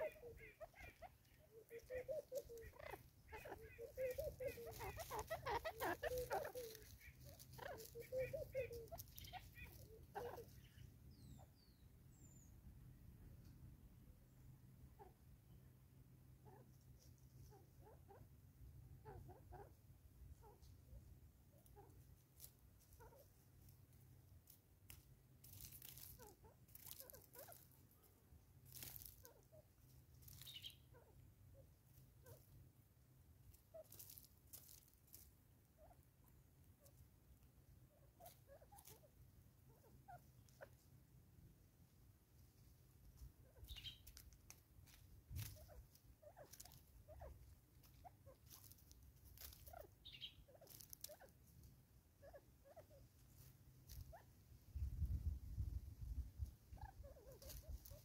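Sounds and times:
rustling and crackling: 0:00.0 - 0:10.8, 0:21.6 - 0:30.7, 0:33.4 - 0:35.5, 0:42.4 - 0:51.8, 0:57.2 - 0:58.0
faint bird chirps: 0:00.0 - 0:12.9, 0:25.5 - 0:32.6, 0:43.4 - 0:44.3, 0:45.3 - 0:51.4.

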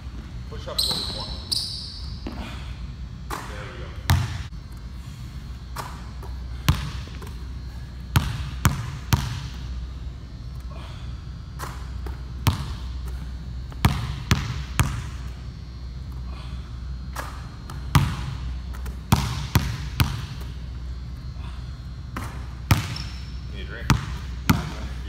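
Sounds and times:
basketball bouncing on wooden floor: 0:04.1 - 0:04.4, 0:06.7 - 0:07.3, 0:08.1 - 0:09.6, 0:12.0 - 0:12.9, 0:13.8 - 0:15.2, 0:17.9 - 0:18.4, 0:19.1 - 0:20.5, 0:22.2 - 0:23.2, 0:23.9 - 0:24.8.

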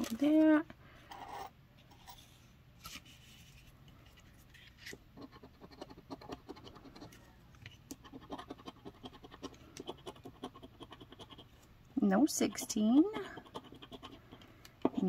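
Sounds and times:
coin scratching lottery ticket: 0:08.1 - 0:11.5, 0:13.2 - 0:14.2.

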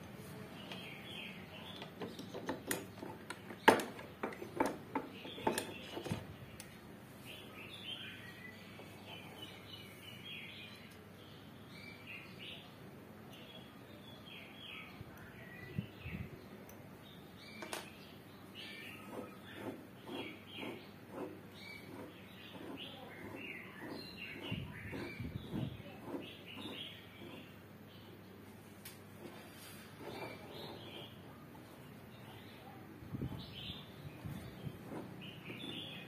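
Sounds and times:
small bird chirping: 0:17.1 - 0:28.2, 0:29.3 - 0:36.0.

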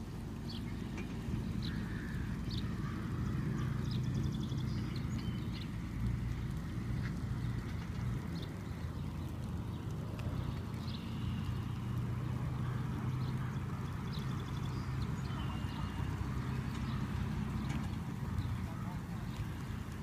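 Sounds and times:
car engine humming: 0:00.0 - 0:20.0
bird chirps: 0:13.3 - 0:18.6.

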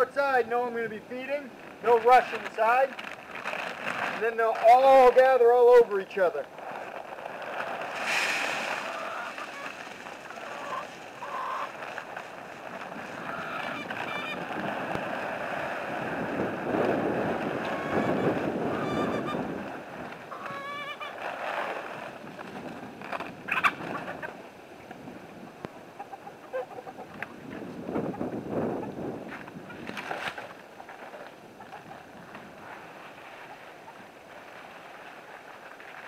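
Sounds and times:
feed poured into metal can: 0:07.9 - 0:10.4
chickens clucking and squawking: 0:08.0 - 0:12.0, 0:13.0 - 0:14.5, 0:17.6 - 0:19.4, 0:20.3 - 0:21.2, 0:23.5 - 0:24.4, 0:25.9 - 0:27.4.

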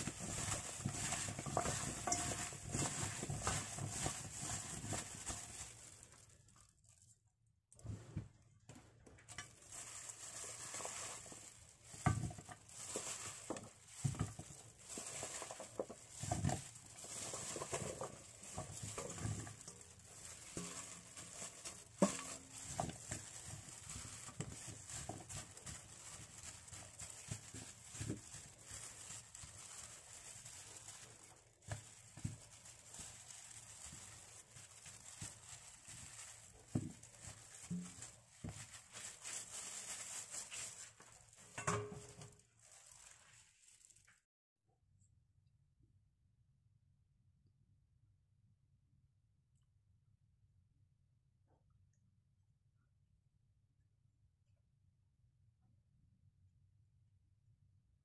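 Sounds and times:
plastic glove rustling: 0:00.0 - 0:44.3.

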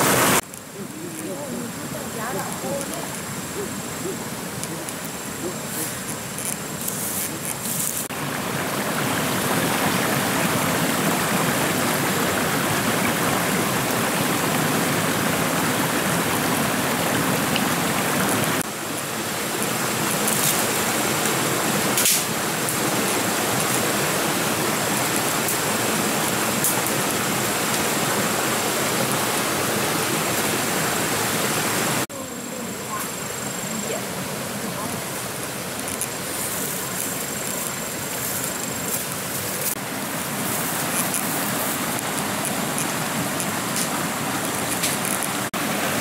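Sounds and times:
stream rushing over stones: 0:00.0 - 0:46.0.

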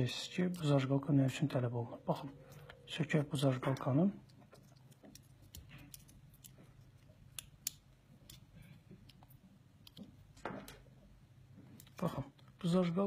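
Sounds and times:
nail clipper clicking and scraping: 0:07.3 - 0:08.5.

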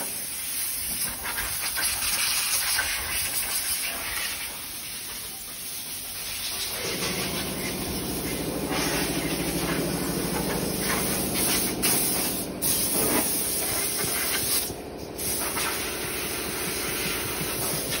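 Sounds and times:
constant hiss: 0:00.0 - 0:18.0
machinery hum: 0:04.0 - 0:18.0.

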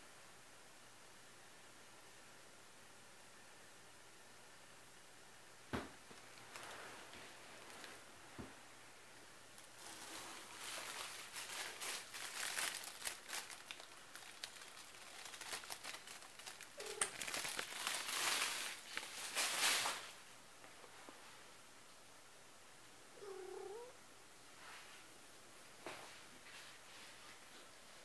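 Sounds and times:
crinkly rustling and crackling: 0:06.1 - 0:08.4, 0:09.5 - 0:21.4.

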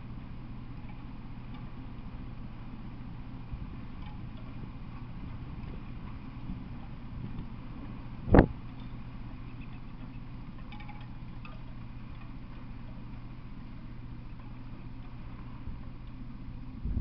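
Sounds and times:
low outdoor hum: 0:00.0 - 0:17.0
wind on microphone: 0:03.5 - 0:08.8, 0:16.7 - 0:17.0
faint high tinkling pings: 0:08.8 - 0:11.8.

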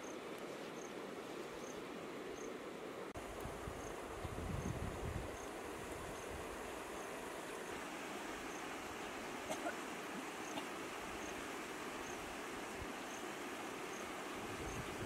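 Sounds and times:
steady outdoor hiss: 0:00.0 - 0:15.0.

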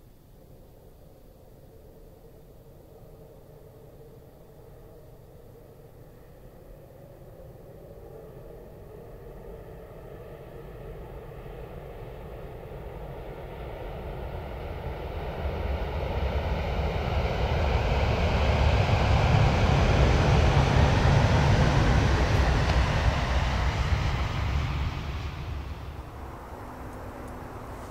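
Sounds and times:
high-speed train rushing past: 0:12.8 - 0:27.9.

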